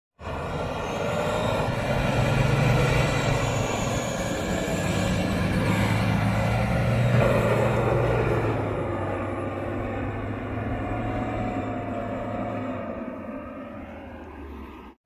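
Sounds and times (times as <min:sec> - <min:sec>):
wheels churning sand: 0:00.2 - 0:08.6
engine running under load: 0:00.2 - 0:15.0.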